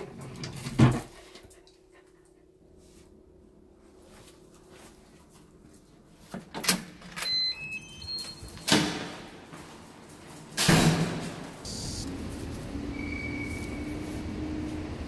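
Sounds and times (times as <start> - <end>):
electronic door lock beeps: 7.2 - 8.7.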